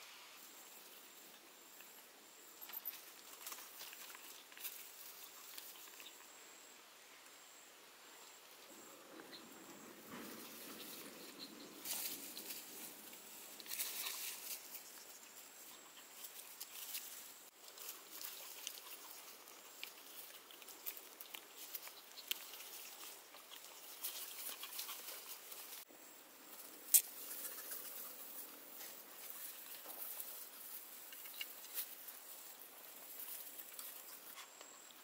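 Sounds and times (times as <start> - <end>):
puppies scuffling in grass: 9.4 - 25.9, 26.5 - 34.6
puppy chewing: 17.6 - 25.6.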